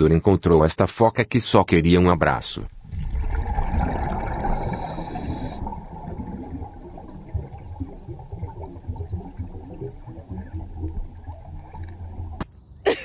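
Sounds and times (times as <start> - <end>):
water crackling: 1.9 - 12.5
muffled underwater rumble: 2.1 - 12.4.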